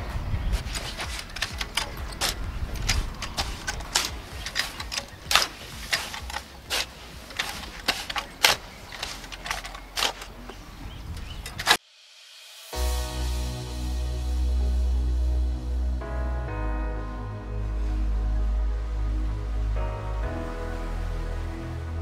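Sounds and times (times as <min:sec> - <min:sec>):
shovel scraping sand and cement: 0:00.4 - 0:11.8.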